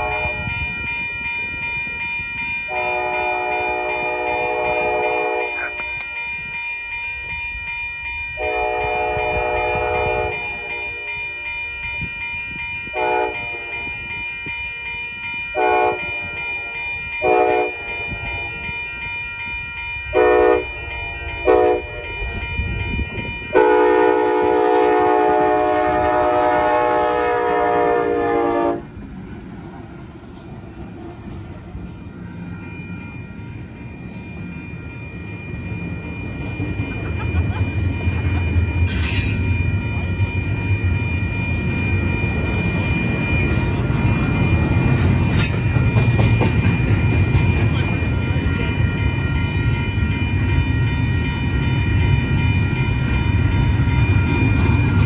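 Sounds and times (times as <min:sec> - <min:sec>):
locomotive air horn: 0:00.0 - 0:00.4, 0:02.7 - 0:05.9, 0:08.4 - 0:11.1, 0:13.0 - 0:13.9, 0:15.6 - 0:16.2, 0:17.2 - 0:18.4, 0:20.2 - 0:20.7, 0:21.4 - 0:22.0, 0:23.6 - 0:28.9
train rumbling past: 0:00.0 - 0:55.0.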